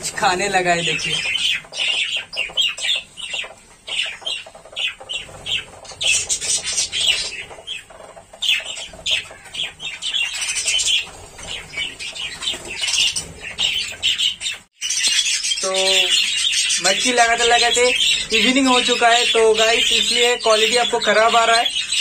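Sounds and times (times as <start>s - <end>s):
wings flapping: 0.0s - 14.7s
budgerigars chirping: 0.0s - 22.0s.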